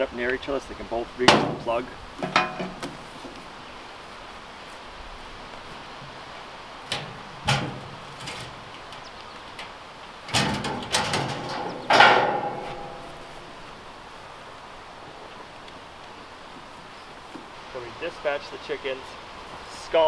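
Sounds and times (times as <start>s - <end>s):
sheet metal knocks and clanks: 1.3s - 3.0s, 6.9s - 8.7s, 10.3s - 13.4s
ringing metal clang: 10.3s - 13.4s.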